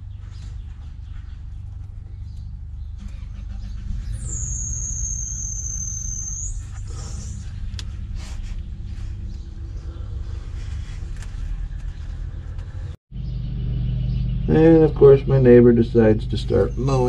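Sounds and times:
distant lawn mower running: 0:06.7 - 0:17.0.

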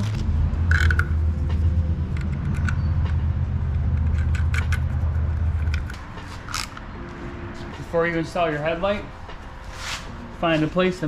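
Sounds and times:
low mechanical hum: 0:00.0 - 0:08.0.

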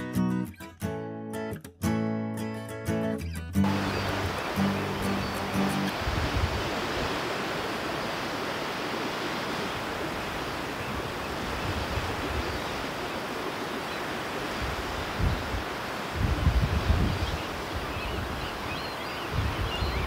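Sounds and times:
surf washing onto rocks: 0:03.6 - 0:19.6
wind on microphone: 0:03.7 - 0:20.0.

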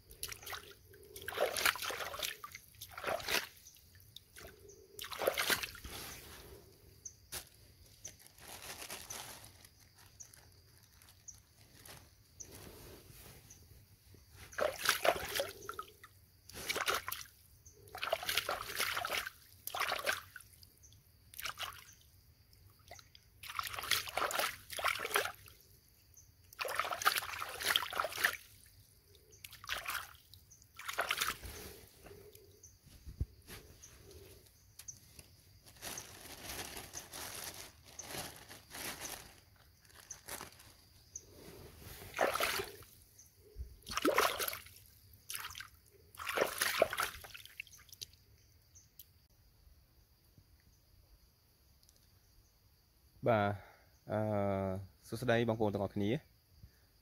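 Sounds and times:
water splashing and sloshing: 0:00.0 - 0:06.7, 0:14.1 - 0:20.7, 0:21.3 - 0:22.0, 0:22.7 - 0:25.7, 0:26.4 - 0:32.4, 0:41.2 - 0:43.0, 0:43.8 - 0:48.2
water trickling: 0:42.1 - 0:42.8, 0:43.9 - 0:48.1.

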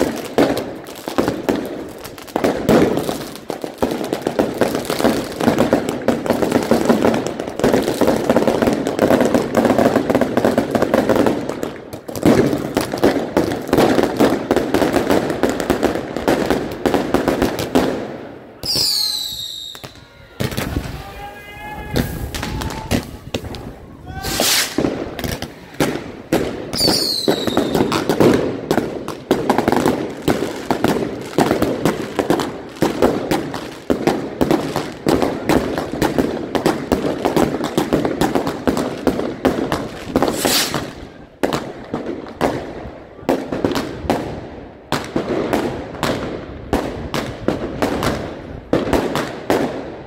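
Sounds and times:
firecrackers cracking and banging: 0:00.0 - 0:50.0
rushing firework bursts: 0:00.0 - 0:50.0
falling firework whistle: 0:18.6 - 0:25.0, 0:26.7 - 0:28.0, 0:40.3 - 0:41.0.

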